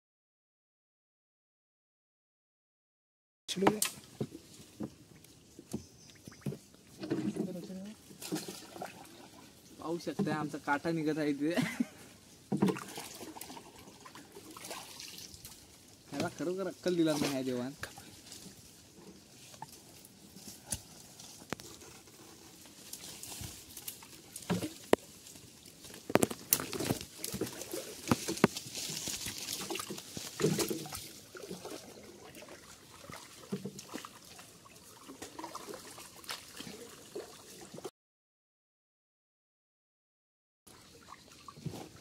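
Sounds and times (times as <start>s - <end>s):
water gurgling and splashing: 6.3s - 10.1s, 12.4s - 19.9s, 23.3s - 37.9s, 40.7s - 42.0s.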